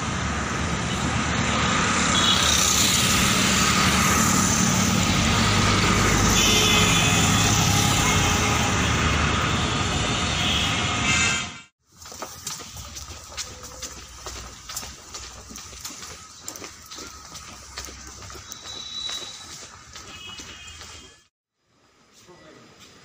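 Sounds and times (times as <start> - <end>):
engine drone: 0.0 - 11.3
road noise: 0.0 - 23.0.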